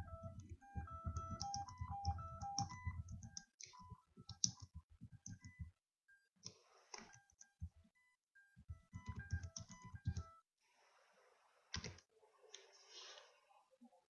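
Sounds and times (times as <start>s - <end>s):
short electronic tones melody: 0.0s - 4.6s.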